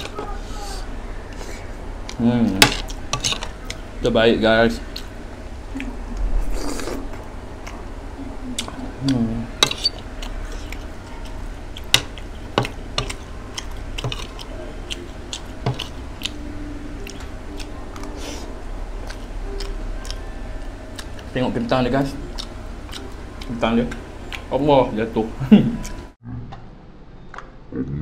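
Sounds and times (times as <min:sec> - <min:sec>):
person murmuring: 0:08.2 - 0:09.5.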